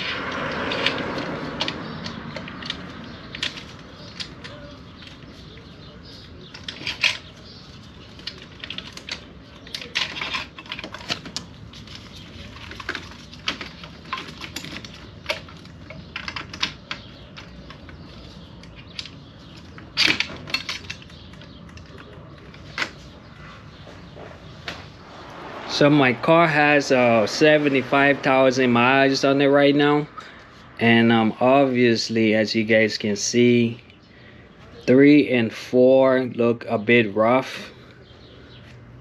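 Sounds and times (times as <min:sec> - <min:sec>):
metal tools clinking: 0:00.0 - 0:21.5.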